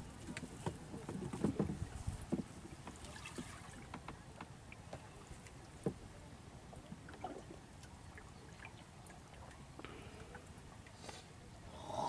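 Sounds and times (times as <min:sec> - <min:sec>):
faint ticks and light knocks: 0:00.2 - 0:06.1.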